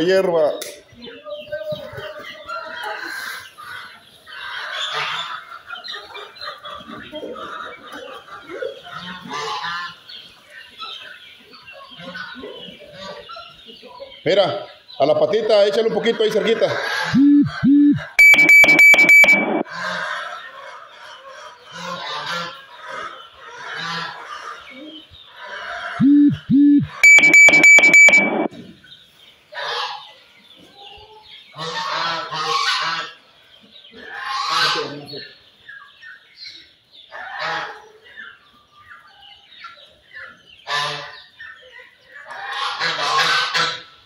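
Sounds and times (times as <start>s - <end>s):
chickens clucking: 0.6s - 17.9s, 20.0s - 26.2s, 29.1s - 44.0s
rapid loud beeping: 17.2s - 19.6s, 26.0s - 28.5s.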